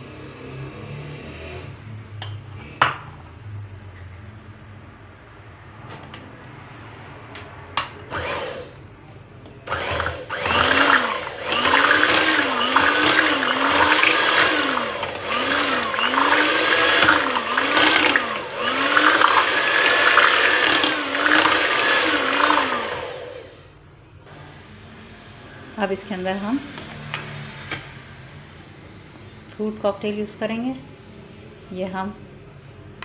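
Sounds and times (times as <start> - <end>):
electric hand mixer whining: 8.1 - 8.8, 9.7 - 23.6.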